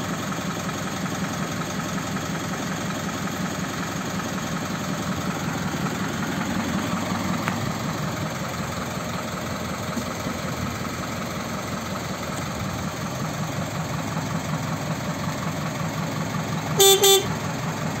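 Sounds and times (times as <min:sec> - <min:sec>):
diesel engine idling: 0:00.0 - 0:18.0
vehicle horn toots: 0:16.8 - 0:17.4.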